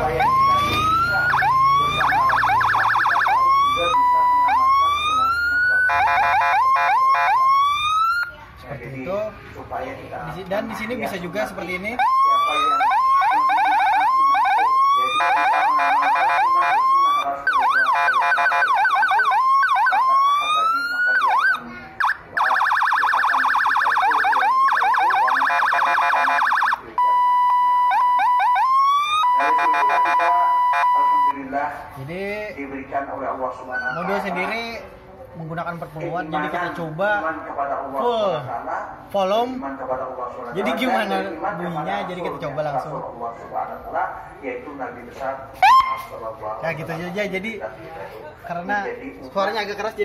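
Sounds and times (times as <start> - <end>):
electronic siren wailing and yelping: 0.0 - 8.4, 11.8 - 31.4, 33.6 - 34.4, 45.6 - 46.1.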